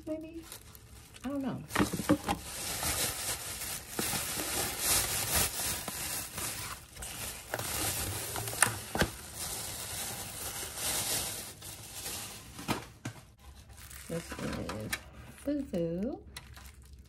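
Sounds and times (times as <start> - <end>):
plastic bag rustling: 0.0 - 15.4.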